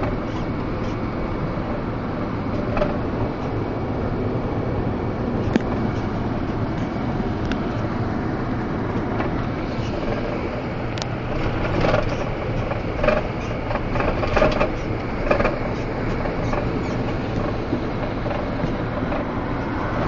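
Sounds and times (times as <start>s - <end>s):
truck engine and road noise: 0.0s - 20.0s
knocks and rattles: 9.1s - 20.0s.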